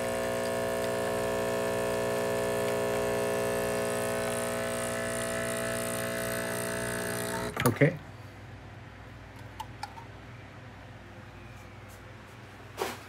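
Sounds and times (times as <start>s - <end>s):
espresso machine pump humming: 0.0s - 8.0s.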